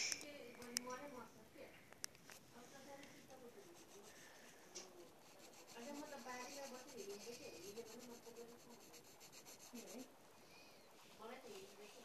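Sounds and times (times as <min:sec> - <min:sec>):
drawing tool scratching paper: 0:03.5 - 0:04.3, 0:05.1 - 0:10.1.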